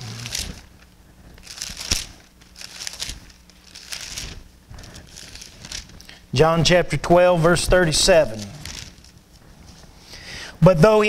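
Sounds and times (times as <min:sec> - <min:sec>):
pages rustling: 0:00.0 - 0:06.3, 0:08.2 - 0:10.0.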